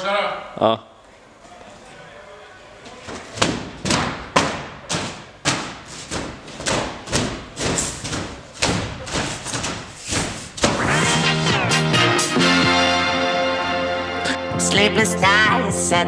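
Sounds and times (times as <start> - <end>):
music: 10.7 - 16.0.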